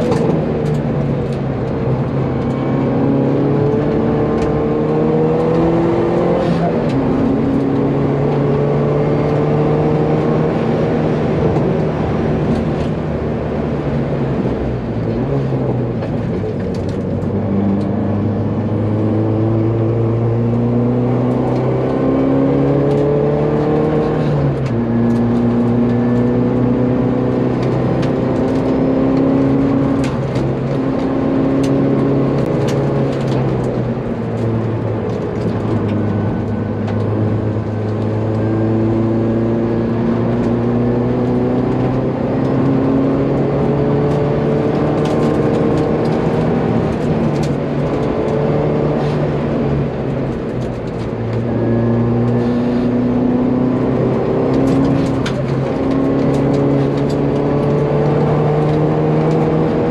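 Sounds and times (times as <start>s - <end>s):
car engine revving in cabin: 0.0s - 59.9s.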